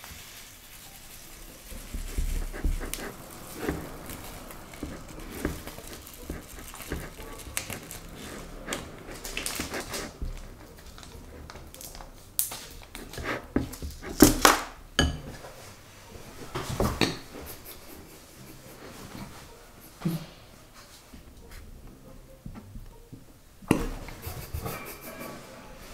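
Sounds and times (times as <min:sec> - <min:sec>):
plastic bag crinkling: 0:00.0 - 0:13.2
spoon scraping a glass bowl: 0:01.2 - 0:12.1.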